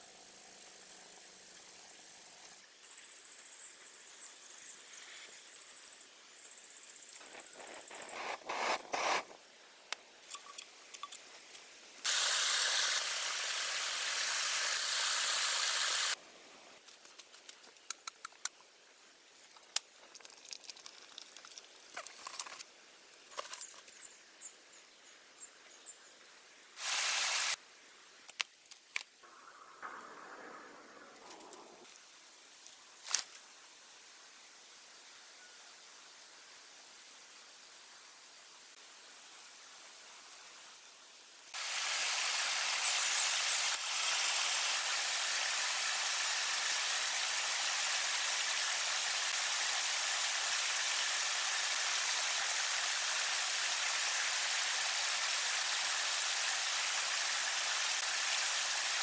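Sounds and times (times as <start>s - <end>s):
loud hissing rush: 7.2s - 9.6s, 12.0s - 16.2s, 26.8s - 27.6s, 29.2s - 31.9s.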